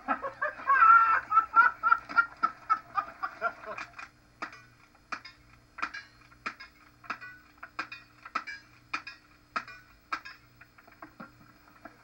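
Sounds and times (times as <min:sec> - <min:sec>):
person laughing: 0:00.0 - 0:04.0.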